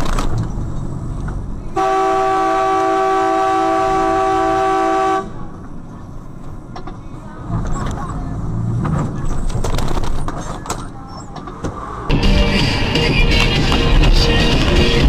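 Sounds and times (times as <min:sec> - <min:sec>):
two-tone vehicle horn blast: 0:01.8 - 0:05.4.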